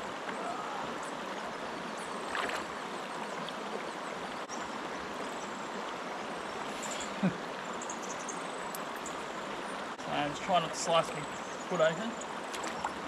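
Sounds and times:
creek water running over rocks: 0.0 - 13.0.

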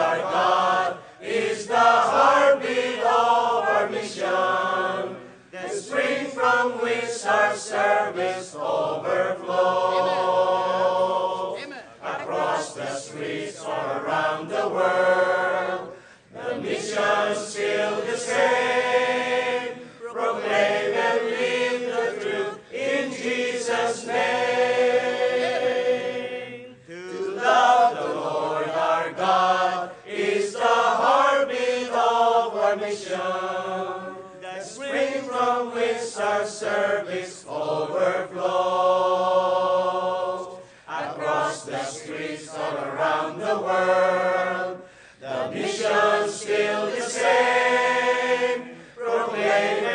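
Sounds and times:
choir singing a hymn: 0.0 - 49.9.

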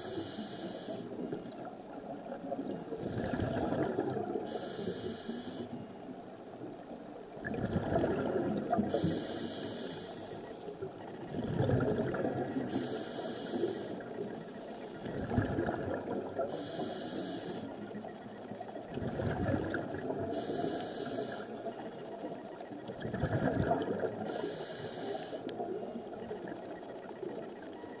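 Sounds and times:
hissing regulator inhale: 0.0 - 1.3, 4.4 - 5.8, 8.9 - 10.9, 12.6 - 15.1, 16.4 - 17.8, 20.3 - 22.3, 24.2 - 25.5
bubbling exhaled air: 3.0 - 4.5, 7.4 - 9.9, 11.3 - 14.3, 15.0 - 17.6, 18.9 - 21.5, 23.0 - 25.0.

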